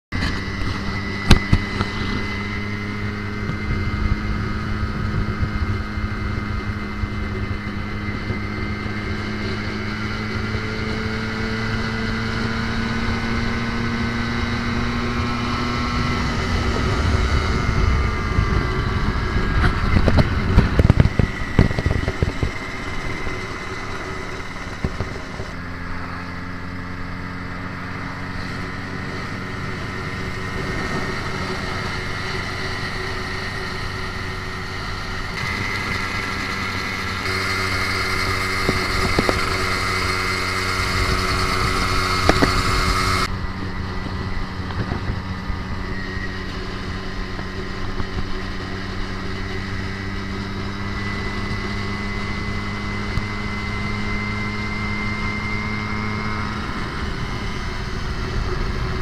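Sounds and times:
motorcycle engine buzzing: 0:00.1 - 0:59.0
wind buffeting on microphone: 0:14.8 - 0:25.6, 0:35.2 - 0:51.2.

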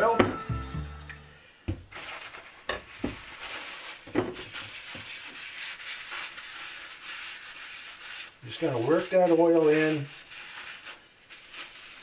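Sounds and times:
towel rubbing skillet: 0:01.9 - 0:12.0.

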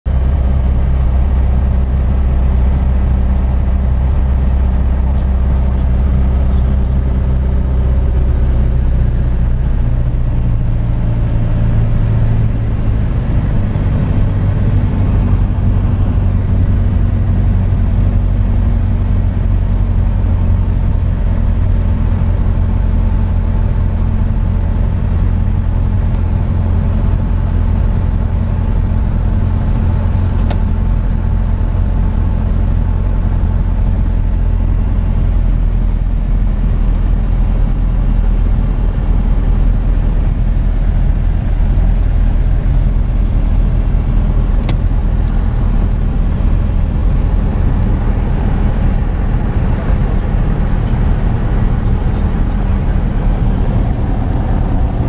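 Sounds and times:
engine droning: 0:00.1 - 0:55.0.

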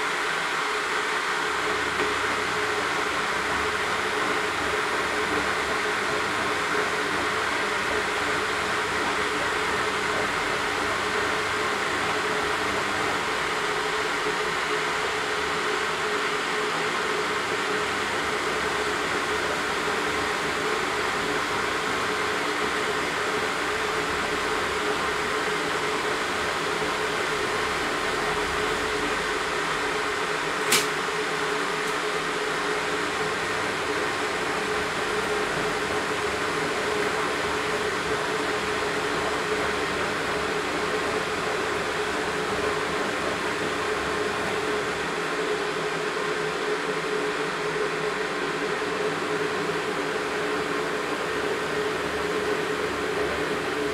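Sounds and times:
appliance hum and whirring: 0:00.0 - 0:53.9
sharp click: 0:30.6 - 0:31.0.

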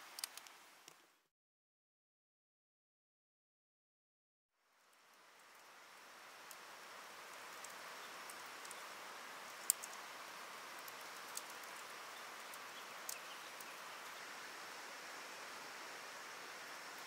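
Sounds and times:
sharp ticks: 0:09.6 - 0:10.0.

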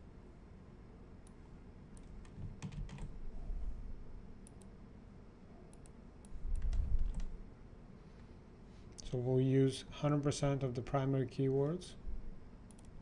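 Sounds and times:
keyboard and mouse clicks: 0:02.0 - 0:03.1, 0:05.7 - 0:07.3.

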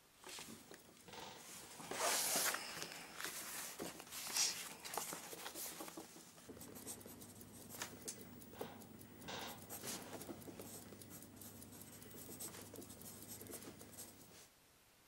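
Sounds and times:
paper rustling: 0:01.6 - 0:14.5
pencil scratching on paper: 0:03.4 - 0:14.4.

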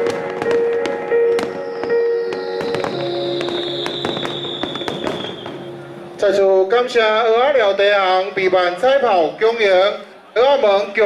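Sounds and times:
music with long held notes: 0:00.0 - 0:06.2
fireworks bangs and crackles: 0:00.0 - 0:07.1.

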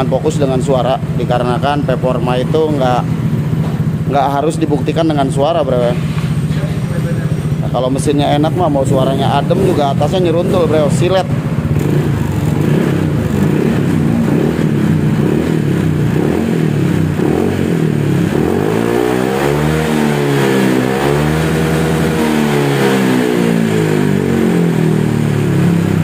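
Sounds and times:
scooter engine idling and revving: 0:00.0 - 0:26.0.

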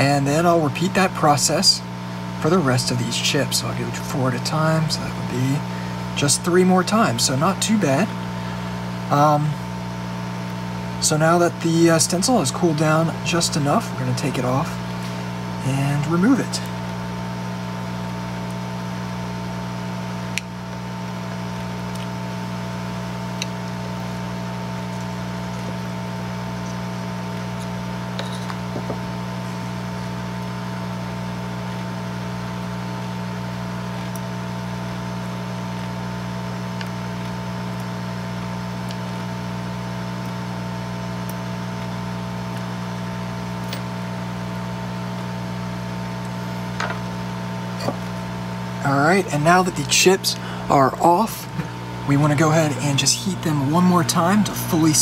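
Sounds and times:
equipment hum: 0:00.0 - 0:55.0.

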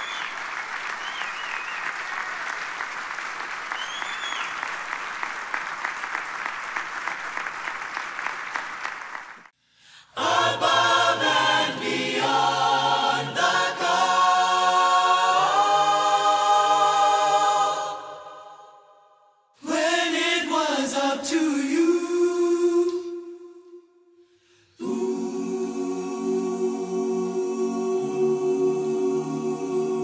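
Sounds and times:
audience applause: 0:00.0 - 0:09.5
choir singing: 0:10.0 - 0:23.9, 0:24.7 - 0:30.0.

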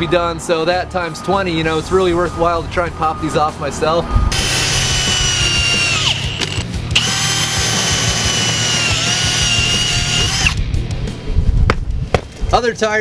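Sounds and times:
low rumble: 0:01.8 - 0:07.6
cordless drill whining: 0:04.3 - 0:10.6.

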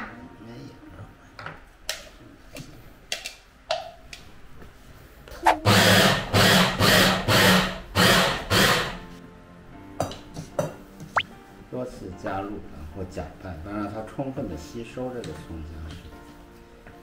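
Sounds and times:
electric meat grinder: 0:05.7 - 0:09.0.

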